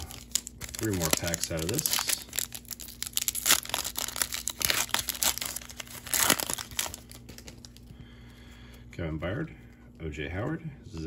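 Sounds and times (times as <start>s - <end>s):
plastic wrapper crinkling: 0.0s - 8.1s.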